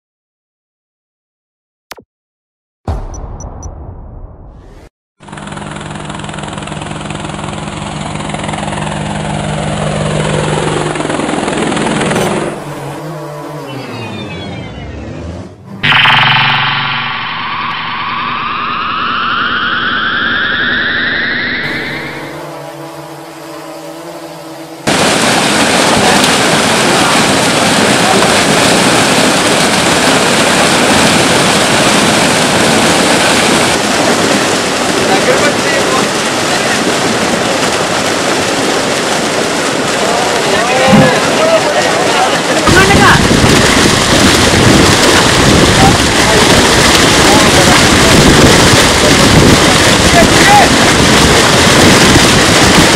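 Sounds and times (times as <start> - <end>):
drone rotors buzzing: 4.6 - 27.2
tone sliding downward: 12.2 - 24.8
fish splashing in shallow water: 24.2 - 52.9.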